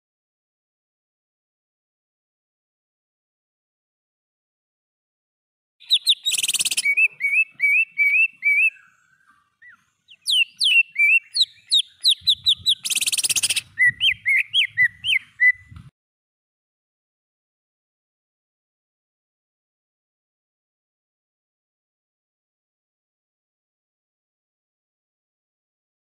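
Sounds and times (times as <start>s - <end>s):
bird harsh rasp: 5.8s - 15.6s
bird whistling song: 5.8s - 15.9s.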